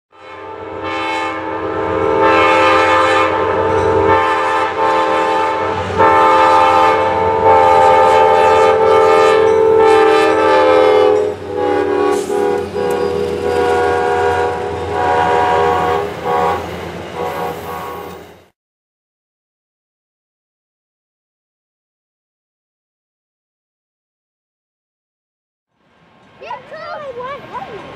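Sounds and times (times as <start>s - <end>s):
train air horn: 0.1s - 18.4s
train rumble and clatter: 2.0s - 18.5s, 25.7s - 27.9s.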